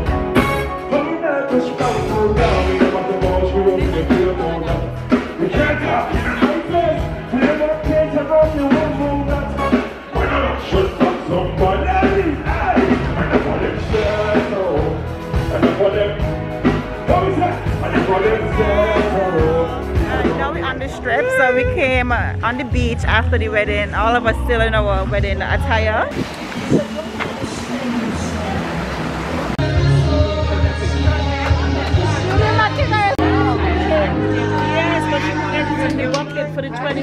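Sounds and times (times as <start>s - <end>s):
live band music: 0.0s - 37.0s
person singing: 0.7s - 15.0s, 17.1s - 21.7s, 29.6s - 36.5s
steady bass beat: 1.8s - 27.6s, 28.2s - 37.0s.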